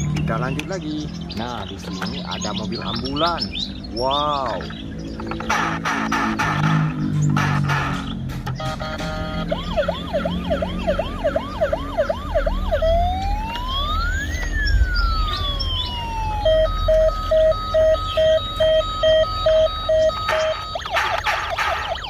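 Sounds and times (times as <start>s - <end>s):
steady beeping: 0.0s - 22.0s
toy electronic siren: 8.6s - 22.0s.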